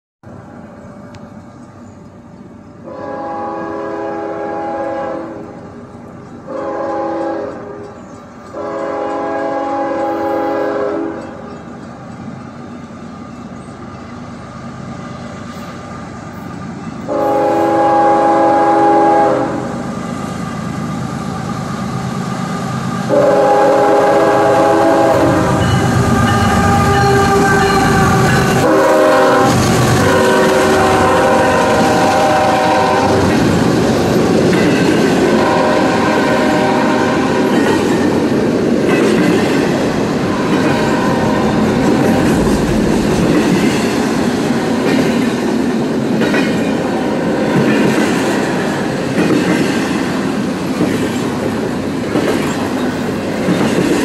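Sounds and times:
locomotive engines and wheels rumbling: 0.2s - 54.0s
train air horn blasts: 2.8s - 5.6s, 6.5s - 7.9s, 8.5s - 11.4s, 17.1s - 19.8s, 23.1s - 33.4s, 35.2s - 37.6s, 40.2s - 42.9s.

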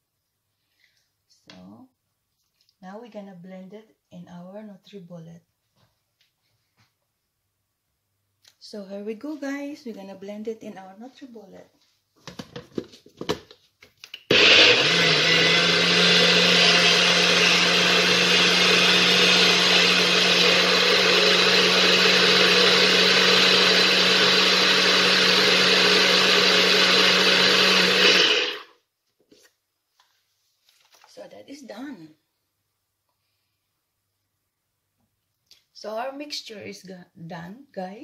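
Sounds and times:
blender motor running: 14.3s - 28.7s.

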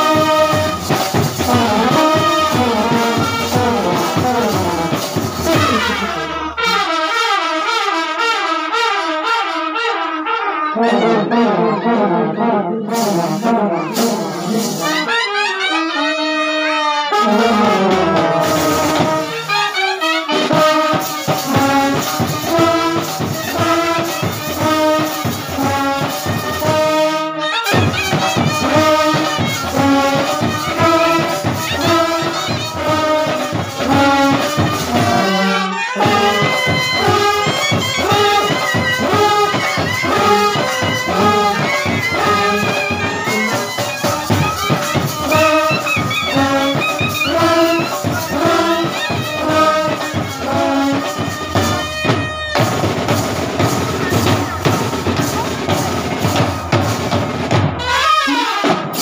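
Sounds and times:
low brass horn: 0.0s - 56.8s
brass band playing: 0.0s - 59.0s
trumpets playing melody: 0.0s - 59.0s.

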